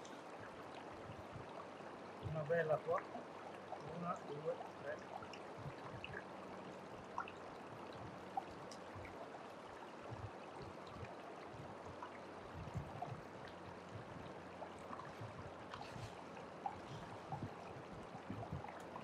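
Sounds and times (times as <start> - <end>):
creek water running over stones: 0.0 - 19.0.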